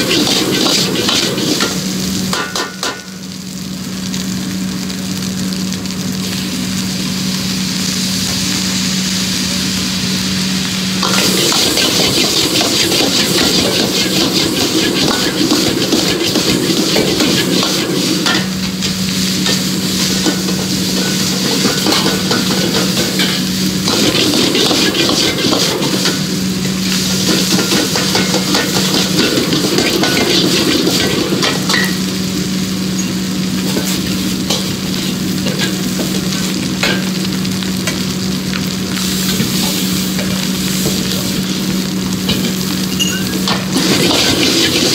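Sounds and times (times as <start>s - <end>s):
rice sizzling in a wok: 0.0s - 44.9s
metal ladle scraping a wok: 11.0s - 18.5s.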